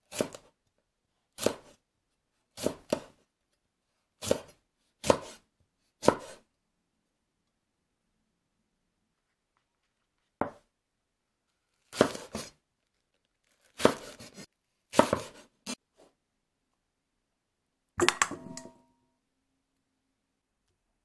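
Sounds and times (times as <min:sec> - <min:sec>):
knife chopping on wooden board: 0:00.1 - 0:00.5, 0:01.4 - 0:01.8, 0:02.6 - 0:03.2, 0:04.2 - 0:05.4, 0:06.0 - 0:06.4, 0:10.4 - 0:10.6, 0:11.9 - 0:12.6, 0:13.7 - 0:15.5.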